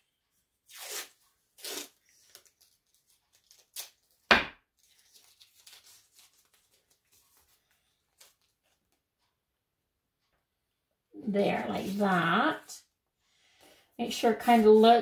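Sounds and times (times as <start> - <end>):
tape ripping off roll: 0.7 - 2.5
tape rustling: 0.7 - 8.9.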